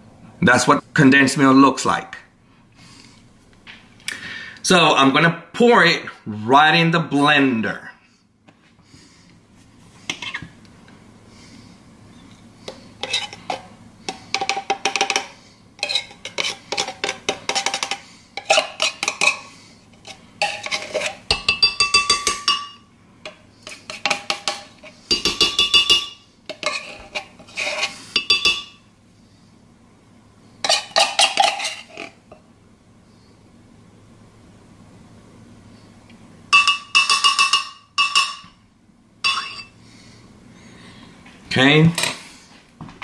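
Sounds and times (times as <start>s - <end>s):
metal spoon scraping in tin can: 13.0s - 14.5s, 15.8s - 19.4s, 20.0s - 21.3s, 26.5s - 28.6s, 30.6s - 32.2s.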